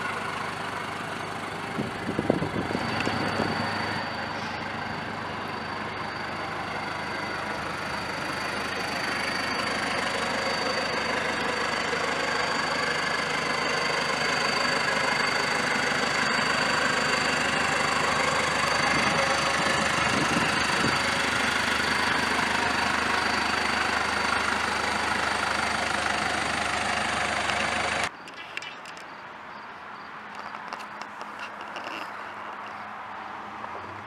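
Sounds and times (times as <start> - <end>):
diesel truck engine idling: 0.0 - 28.1
thin high whine: 2.2 - 21.3.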